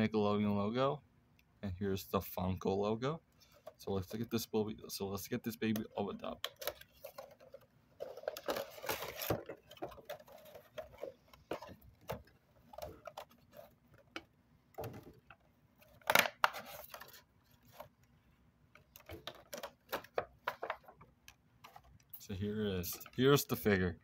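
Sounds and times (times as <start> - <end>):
cardboard box rustling: 6.6 - 14.2.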